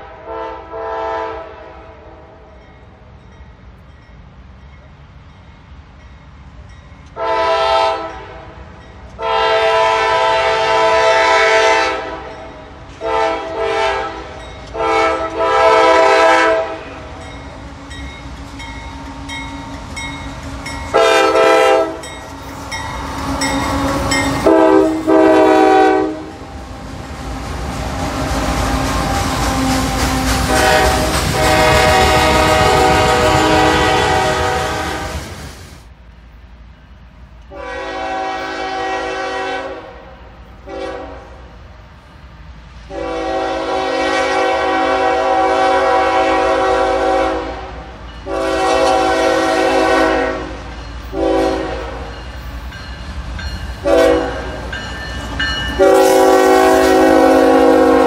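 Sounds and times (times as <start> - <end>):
train air horn blasts: 0.0 - 2.5, 7.2 - 8.6, 9.2 - 17.2, 20.6 - 26.6, 27.3 - 35.3, 37.5 - 41.5, 42.9 - 52.2, 53.8 - 54.8, 55.7 - 58.0
locomotive rumble: 12.2 - 58.0.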